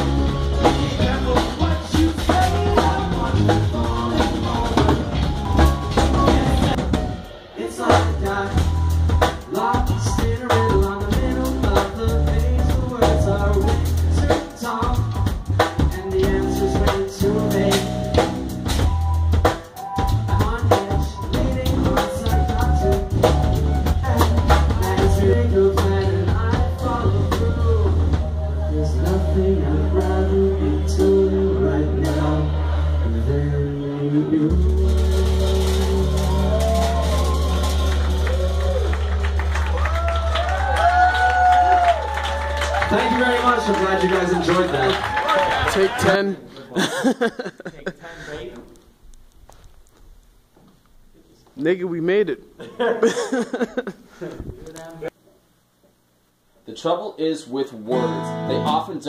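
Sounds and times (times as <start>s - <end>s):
drum kit hitting hard: 0.0s - 28.3s
live band playing: 0.0s - 46.2s, 57.9s - 59.0s.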